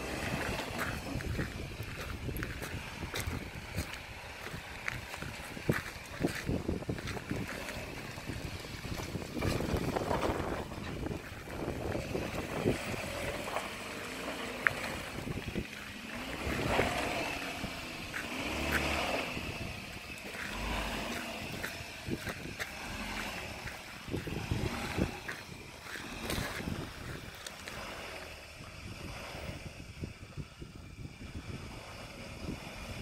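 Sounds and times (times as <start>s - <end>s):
car engine revving: 0.0s - 33.0s.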